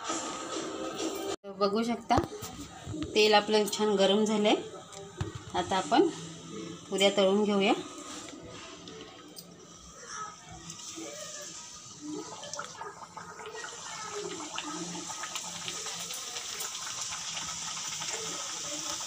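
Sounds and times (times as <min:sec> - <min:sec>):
dough sizzling in hot oil: 0:05.6 - 0:19.0.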